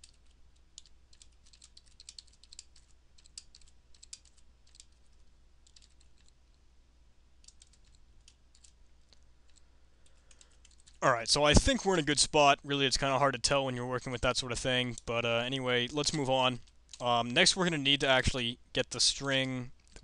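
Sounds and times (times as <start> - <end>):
faint keyboard typing: 0.0 - 6.6, 7.4 - 11.0, 15.8 - 17.5.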